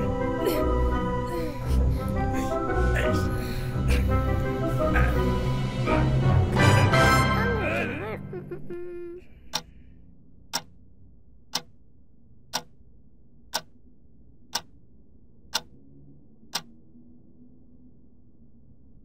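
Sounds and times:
wall clock ticking: 9.5 - 9.8, 10.4 - 14.9, 15.5 - 15.8, 16.5 - 16.8.

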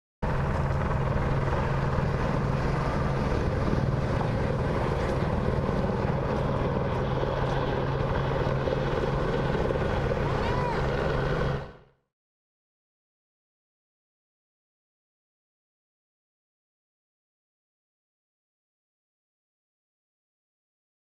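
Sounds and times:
helicopter rotor and engine drone: 0.2 - 12.0.

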